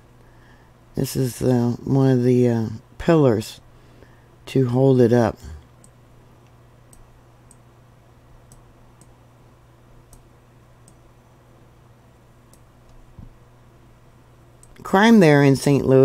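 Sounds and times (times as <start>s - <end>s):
steady low hum: 0.0s - 16.0s
computer mouse clicks: 10.1s - 11.0s.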